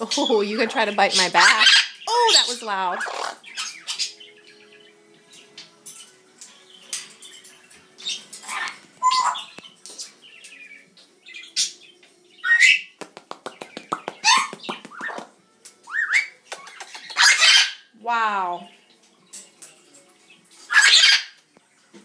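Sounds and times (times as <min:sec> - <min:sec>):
parrot squawking: 0:01.0 - 0:04.2, 0:08.1 - 0:09.6, 0:12.4 - 0:12.9, 0:14.2 - 0:15.2, 0:15.9 - 0:17.9, 0:20.7 - 0:21.4.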